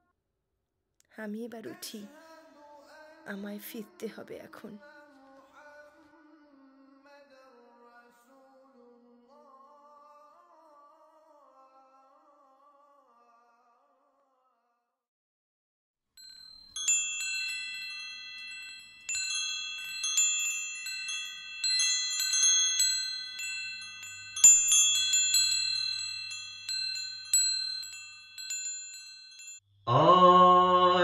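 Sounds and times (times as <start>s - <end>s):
wind chimes tinkling: 16.2s - 29.7s.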